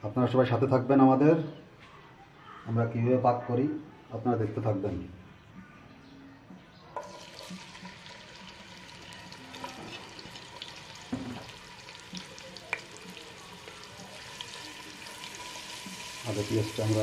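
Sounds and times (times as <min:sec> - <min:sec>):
onions sizzling in hot oil: 0:07.0 - 0:17.0.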